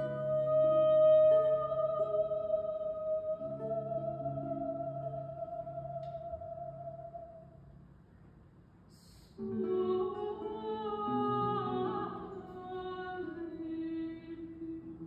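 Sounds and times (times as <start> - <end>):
mezzo-soprano singing: 0.0 - 7.6, 9.4 - 15.0
breathy hiss: 8.8 - 9.5.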